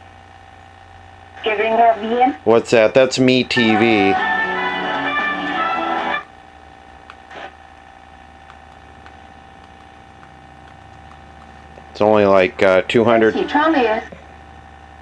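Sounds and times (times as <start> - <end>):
faint steady hum: 0.0 - 15.0
television music: 3.1 - 6.3, 7.1 - 14.5.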